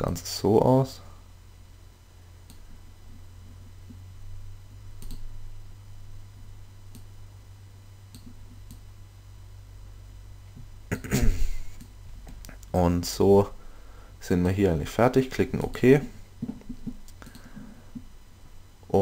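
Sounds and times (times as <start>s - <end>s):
low electrical hum: 0.0s - 19.0s
computer mouse clicks: 2.4s - 2.6s, 5.0s - 5.3s, 8.1s - 8.8s, 17.0s - 17.5s.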